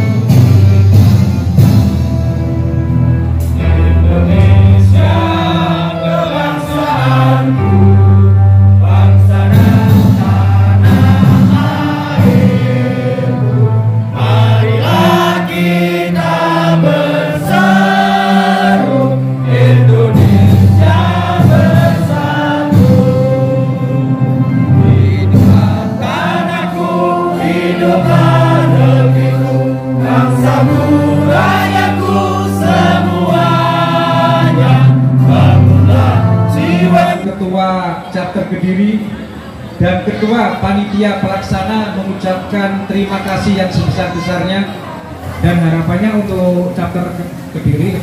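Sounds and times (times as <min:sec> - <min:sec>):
music with held bass notes: 0:00.0 - 0:37.3
group singing in unison: 0:03.5 - 0:37.3.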